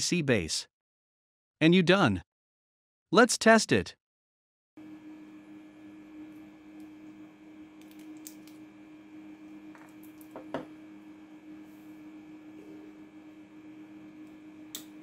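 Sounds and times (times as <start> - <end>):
faint steady hum: 4.8 - 15.0.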